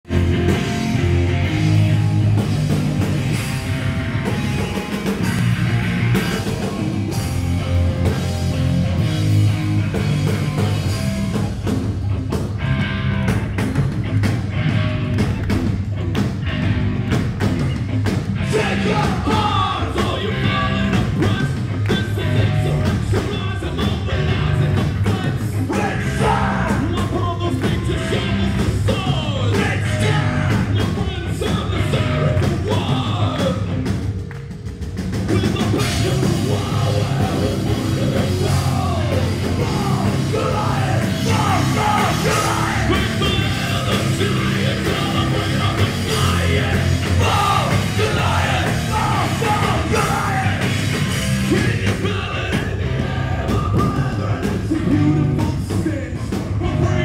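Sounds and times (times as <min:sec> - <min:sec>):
hard rock band playing: 0:00.0 - 0:57.0
vocalist singing: 0:18.4 - 0:34.1, 0:35.1 - 0:57.0.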